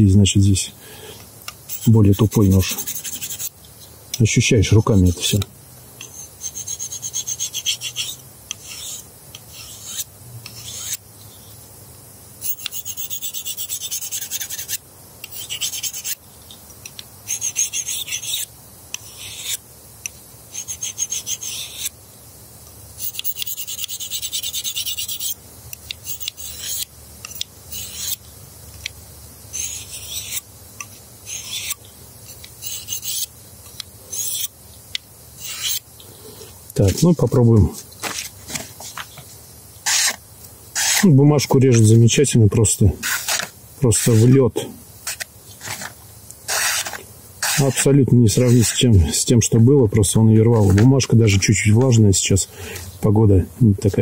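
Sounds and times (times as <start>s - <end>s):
knife scraping on ceramic hone: 6.0s - 11.0s, 17.3s - 19.6s, 26.0s - 28.2s, 29.6s - 30.4s, 31.3s - 31.8s, 32.6s - 33.3s, 34.1s - 34.5s, 35.4s - 35.8s.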